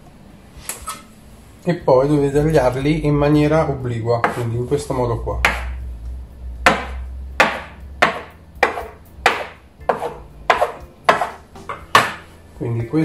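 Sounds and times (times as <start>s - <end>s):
scraper knocking on worktop: 7.5s - 12.2s.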